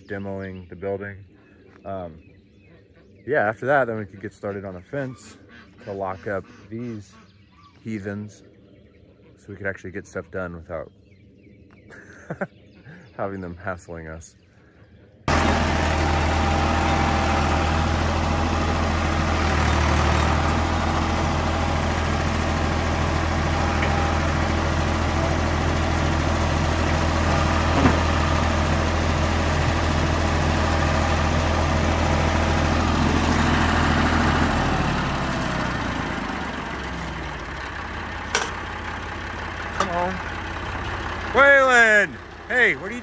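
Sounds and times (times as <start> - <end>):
tractor engine running: 15.3 - 43.0.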